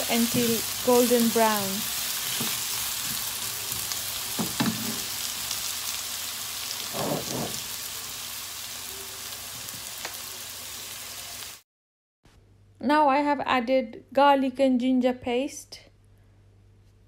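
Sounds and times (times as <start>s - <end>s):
onions sizzling in hot oil: 0.0s - 11.6s.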